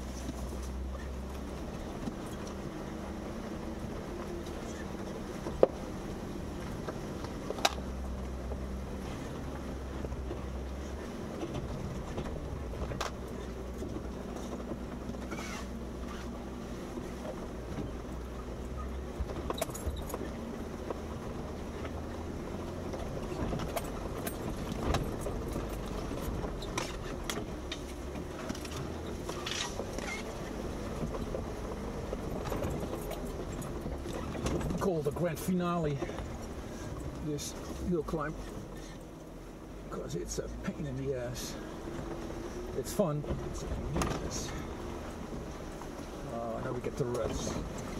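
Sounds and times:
knocks and rattles from vehicle: 0:00.0 - 0:47.9
vehicle engine running at low speed: 0:00.0 - 0:47.9.

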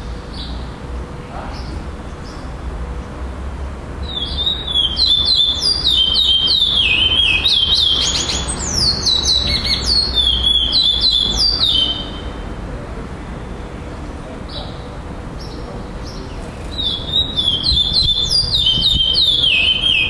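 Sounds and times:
bird singing whistled notes: 0:04.0 - 0:12.3, 0:15.4 - 0:20.0.

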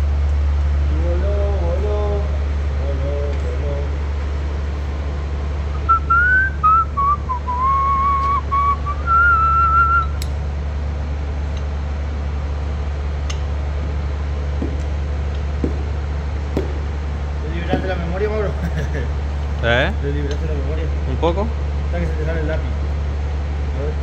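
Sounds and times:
steady low hum: 0:00.0 - 0:24.0
person whistling a tune: 0:05.8 - 0:10.2.

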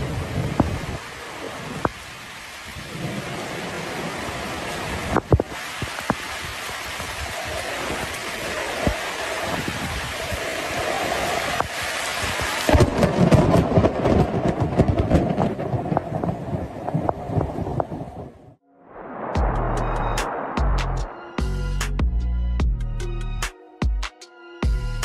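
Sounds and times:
heavy rain pouring: 0:00.0 - 0:21.6
thunder cracks: 0:12.3 - 0:21.6
low rumble of thunder: 0:12.7 - 0:21.5.

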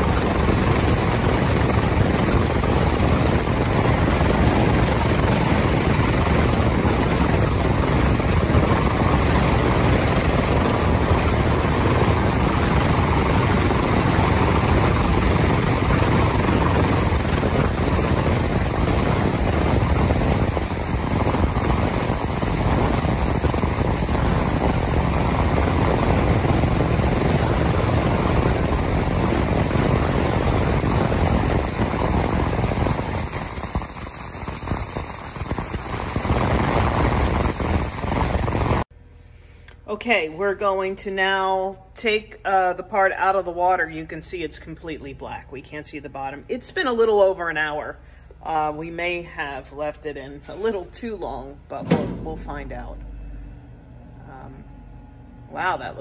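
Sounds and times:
ultrasonic cleaning tank rushing: 0:00.0 - 0:38.8.

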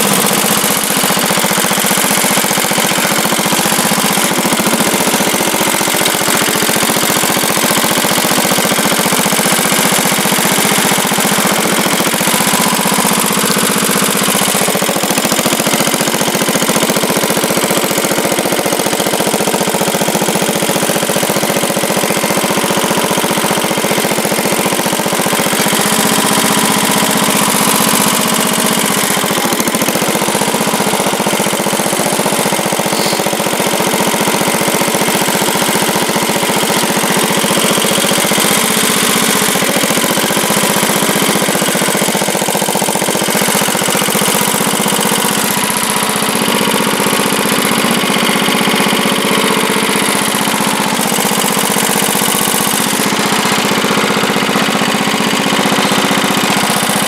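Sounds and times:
garden tractor engine running: 0:00.0 - 0:57.0.

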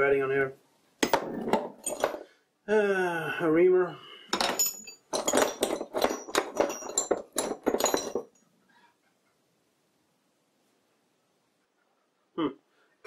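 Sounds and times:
metal tools clinking in drawer: 0:01.0 - 0:02.3, 0:04.3 - 0:08.4.

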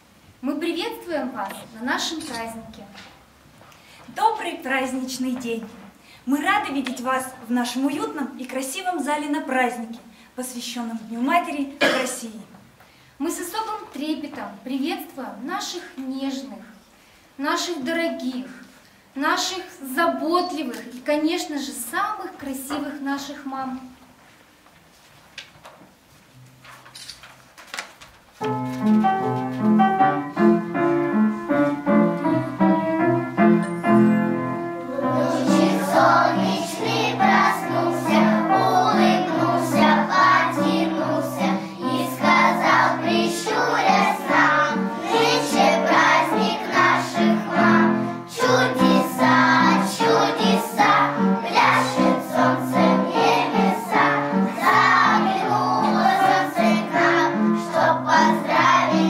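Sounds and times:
instrumental accompaniment: 0:28.4 - 0:59.0
children singing: 0:34.8 - 0:59.0.

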